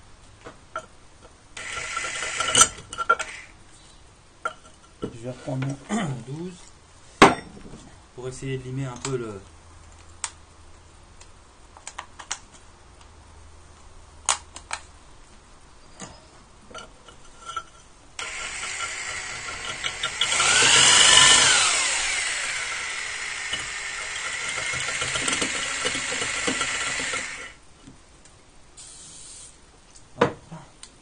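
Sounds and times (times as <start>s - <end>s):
electric drill boring into ceramic: 1.6s - 3.6s, 18.2s - 27.6s.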